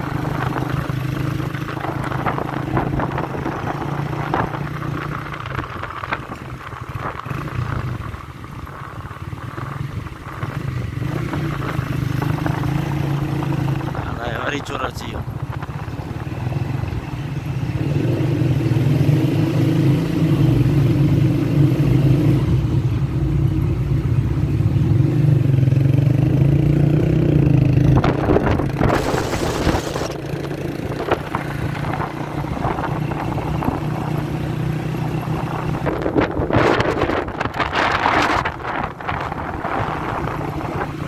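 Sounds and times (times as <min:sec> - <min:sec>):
motorcycle engine running: 0:00.0 - 0:41.0
short burst of hiss: 0:29.0 - 0:30.1.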